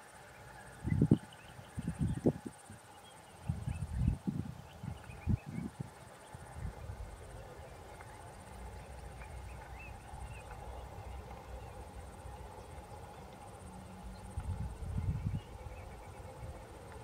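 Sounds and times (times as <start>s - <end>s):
faint bird chirps: 0.2s - 6.7s.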